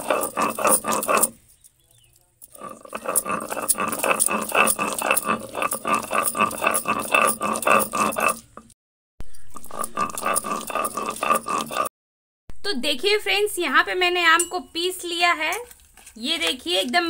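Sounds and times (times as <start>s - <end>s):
grinding stone scraping and knocking: 0.0s - 11.9s.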